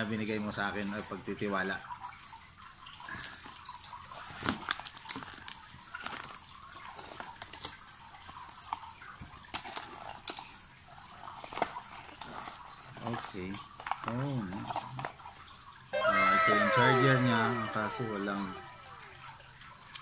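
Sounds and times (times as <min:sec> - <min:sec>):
plastic packaging crinkling: 0:04.0 - 0:07.9.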